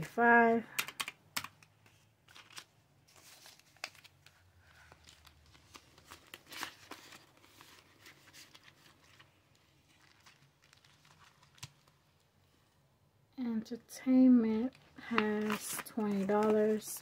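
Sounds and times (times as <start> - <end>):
paper bills rustling: 1.4 - 12.0, 15.0 - 17.0.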